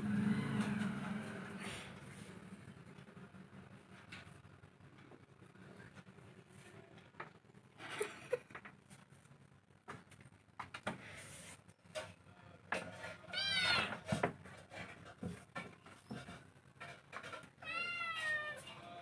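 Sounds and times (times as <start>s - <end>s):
kittens meowing: 17.6s - 18.8s.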